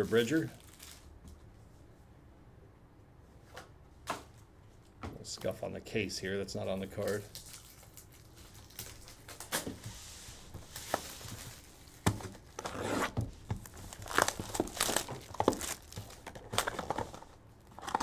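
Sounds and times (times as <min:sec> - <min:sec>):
cellophane and cardboard tearing: 0:00.0 - 0:01.1, 0:07.0 - 0:09.7, 0:10.7 - 0:18.0.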